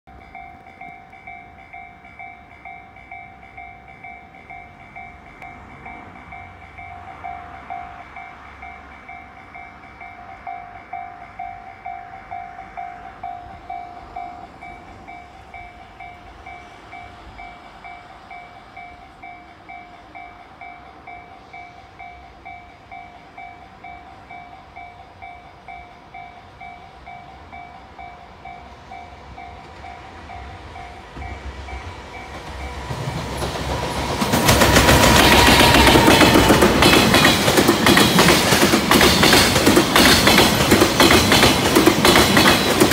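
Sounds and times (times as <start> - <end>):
freight train passing: 0.1 - 42.9.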